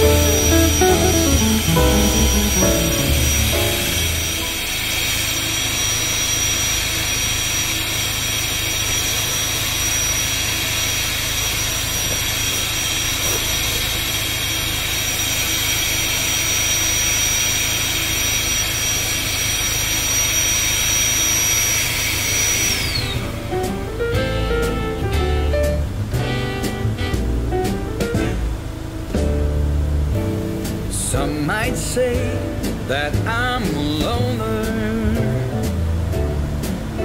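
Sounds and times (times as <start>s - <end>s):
electric air pump whining: 0.0s - 24.2s.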